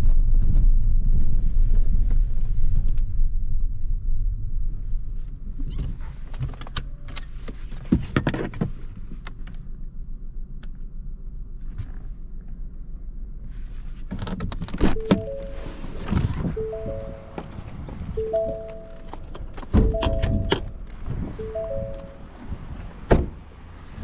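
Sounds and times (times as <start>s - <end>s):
low hum inside car: 0.0s - 24.0s
short electronic tones: 14.9s - 22.5s.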